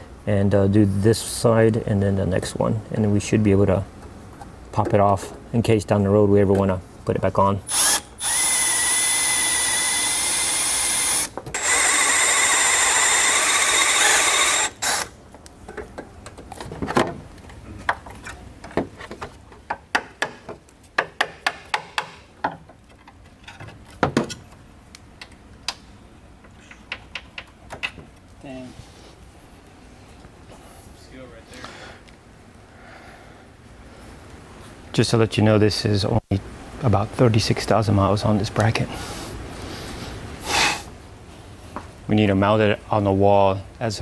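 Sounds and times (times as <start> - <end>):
cordless drill whining: 7.7 - 15.2.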